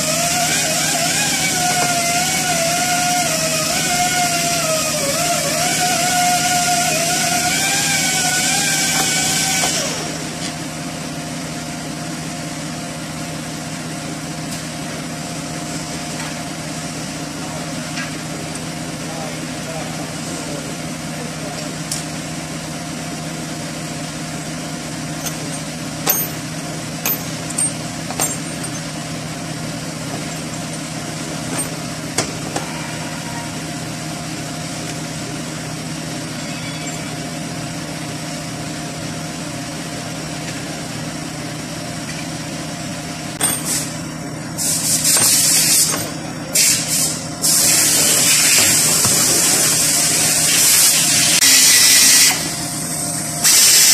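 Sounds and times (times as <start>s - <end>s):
low machine hum: 0.0s - 51.2s
loud hissing bursts: 46.6s - 52.3s.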